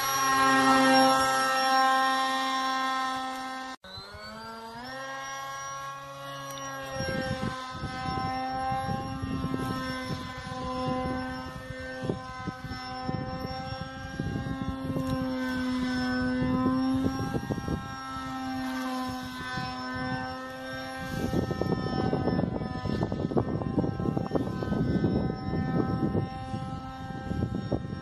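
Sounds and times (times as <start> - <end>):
electric model plane motor whine: 0.0 - 28.0
wind rumbling on microphone: 6.7 - 28.0.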